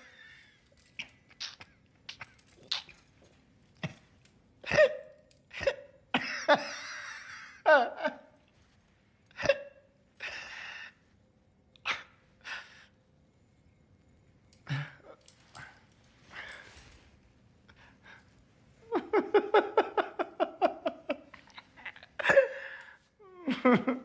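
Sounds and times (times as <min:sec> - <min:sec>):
person hiccupping: 0:01.0 - 0:03.0.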